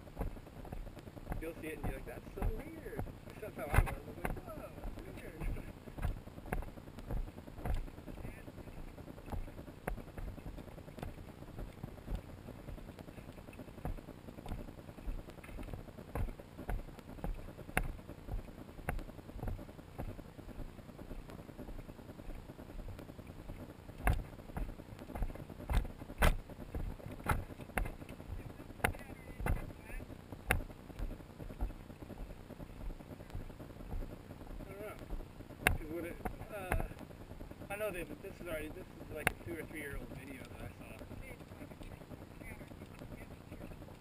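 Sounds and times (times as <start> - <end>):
footsteps on dirt and gravel: 0.0 - 23.0, 23.6 - 29.7
sharp crunches and clicks: 0.0 - 44.0.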